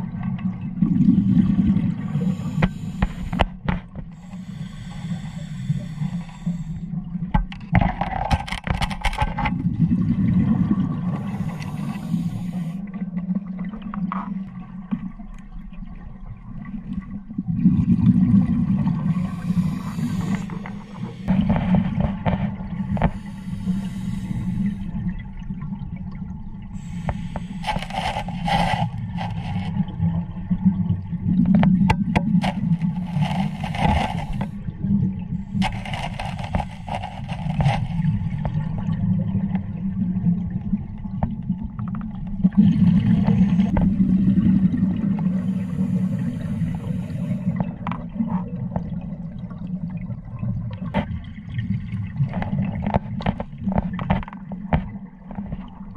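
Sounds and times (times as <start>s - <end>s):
exhaled bubbles rushing: 0.0s - 3.6s, 9.5s - 55.9s
scuba regulator breathing rumble: 1.2s - 7.0s, 10.7s - 12.9s, 18.7s - 25.0s, 26.8s - 29.8s, 32.4s - 34.6s, 35.4s - 38.5s, 43.2s - 47.9s.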